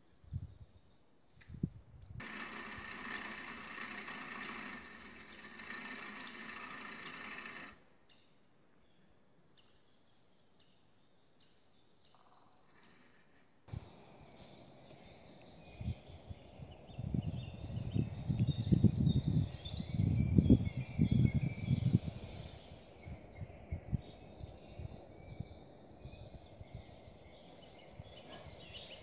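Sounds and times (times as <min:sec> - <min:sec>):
low rumbling wind buffets: 0:00.2 - 0:02.2, 0:13.7 - 0:29.0
songbirds chirping and singing: 0:04.4 - 0:29.0.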